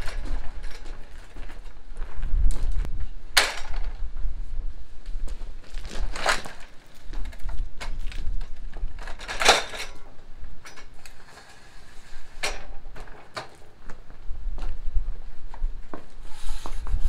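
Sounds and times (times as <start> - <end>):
metal clanks and rattles: 0.0 - 1.7, 3.3 - 4.0, 6.1 - 11.7, 12.3 - 13.8.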